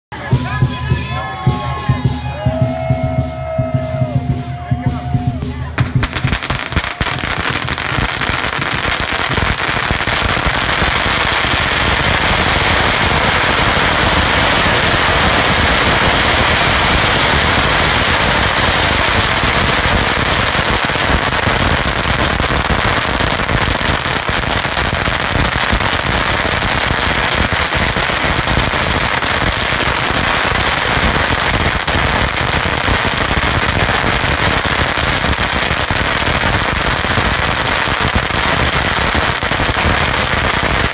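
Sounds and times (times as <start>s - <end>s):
firecrackers banging rapidly: 0.1s - 40.9s.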